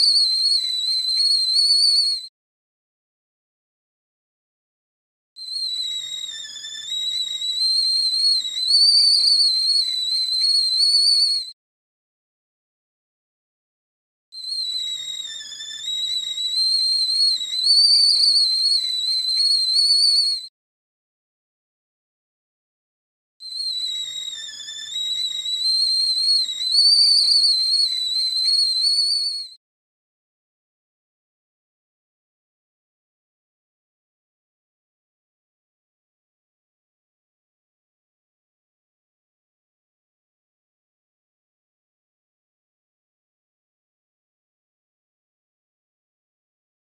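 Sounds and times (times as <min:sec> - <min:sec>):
tea kettle whistling: 0:00.0 - 0:02.3, 0:05.4 - 0:11.6, 0:14.3 - 0:20.5, 0:23.4 - 0:29.6.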